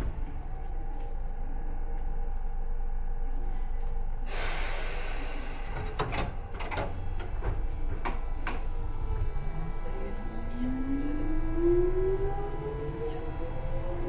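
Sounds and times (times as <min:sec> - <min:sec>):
train equipment humming: 0:00.0 - 0:14.0
hiss of released air: 0:04.3 - 0:05.9.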